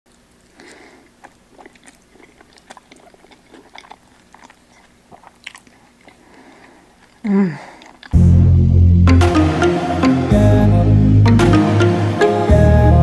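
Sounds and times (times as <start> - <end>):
mouth clicks and smacks: 0.1 - 8.2
person chewing: 0.1 - 8.4.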